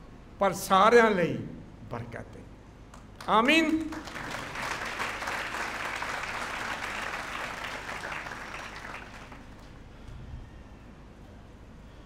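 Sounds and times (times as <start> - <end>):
crowd applause: 3.9 - 9.7.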